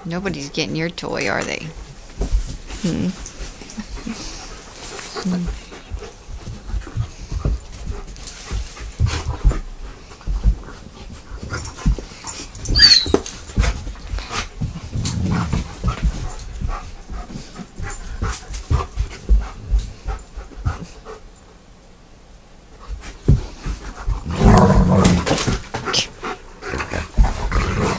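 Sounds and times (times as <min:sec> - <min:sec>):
thumps and knocks of dogs playing: 0:00.2 - 0:21.4, 0:22.7 - 0:27.9
high squeal: 0:12.7 - 0:13.2.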